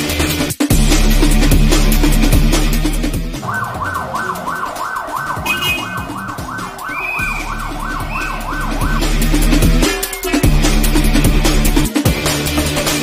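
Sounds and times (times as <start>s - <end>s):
electronic dance music: 0.7s - 12.4s
ambulance siren wailing: 3.4s - 11.9s.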